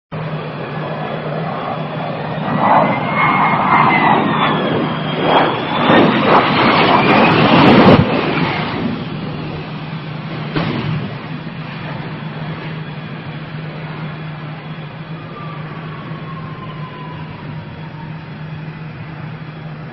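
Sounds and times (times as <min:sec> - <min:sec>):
jet engine whine and roar: 0:00.1 - 0:19.9
jet crashing onto runway: 0:00.2 - 0:17.6
sharp crack: 0:10.4 - 0:11.4.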